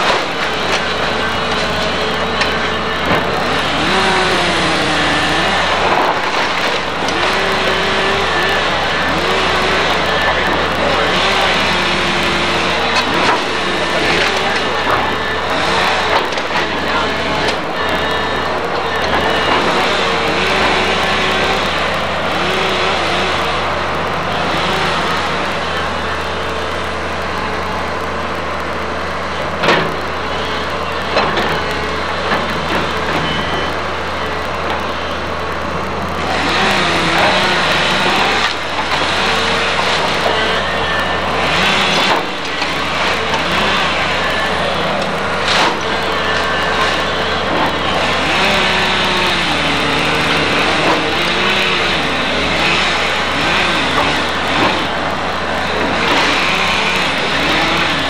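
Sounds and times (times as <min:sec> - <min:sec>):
excavator diesel engine running: 0:00.0 - 0:58.0
wavering hydraulic whine: 0:00.0 - 0:58.0
wood splintering cracks: 0:00.0 - 0:58.0
debris crashing and clattering: 0:05.2 - 0:22.3.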